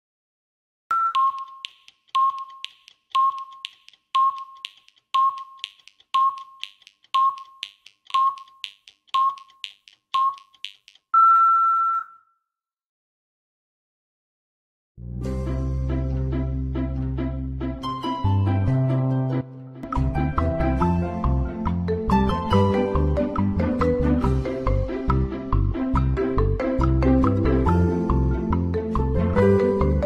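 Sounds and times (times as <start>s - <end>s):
short beeps: 0.9s - 1.6s, 11.1s - 12.4s
faint ticking: 1.1s - 11.1s.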